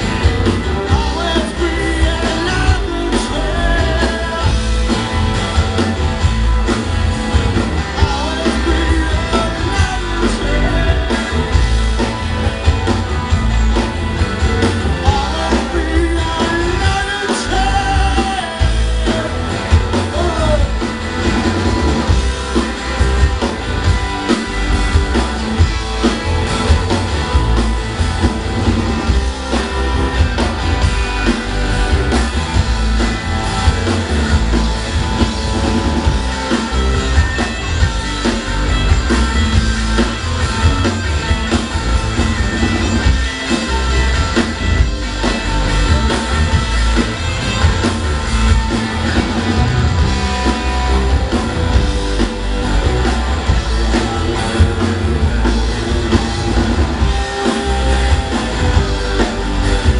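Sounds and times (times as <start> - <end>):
bass guitar: 0.0 - 59.9
drum kit beat: 0.0 - 59.9
electric guitars: 0.0 - 59.9.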